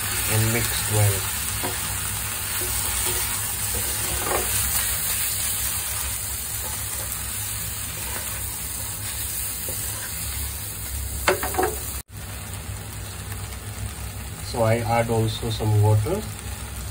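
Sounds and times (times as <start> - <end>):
shrimp sizzling in pan: 0.0 - 16.9
spatula scraping pan: 1.6 - 10.5.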